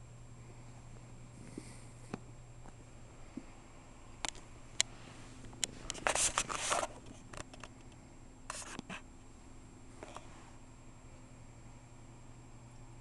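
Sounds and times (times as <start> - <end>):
rustling and scraping on cloth: 4.9 - 7.5.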